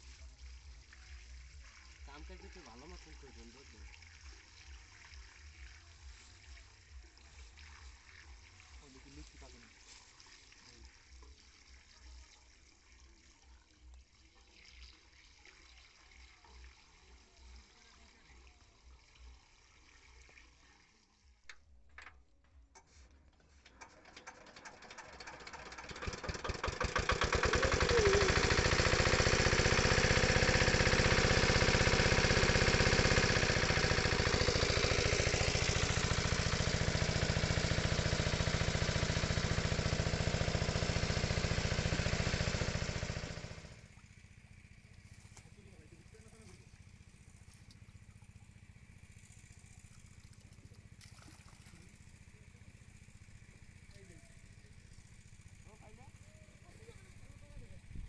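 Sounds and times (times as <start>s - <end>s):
engine-driven water pump running: 0.0s - 58.0s
pump starter clicks: 21.5s - 43.5s.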